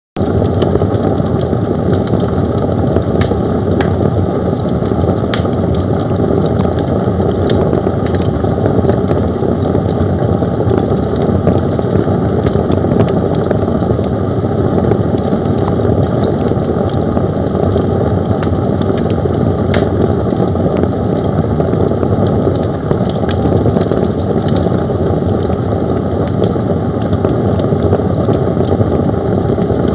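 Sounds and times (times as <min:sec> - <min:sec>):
fire roaring and crackling: 0:00.2 - 0:29.9.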